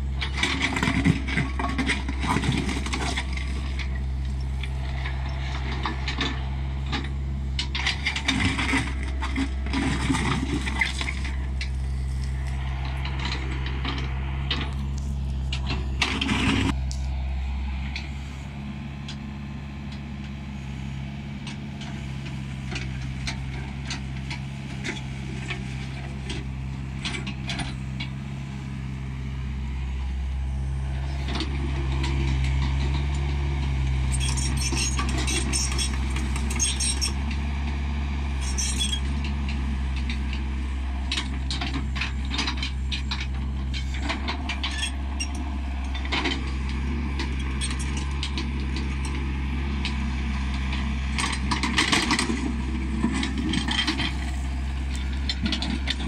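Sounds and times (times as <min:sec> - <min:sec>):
excavator diesel engine: 0:00.0 - 0:56.0
bucket scraping soil and stones: 0:08.0 - 0:13.8.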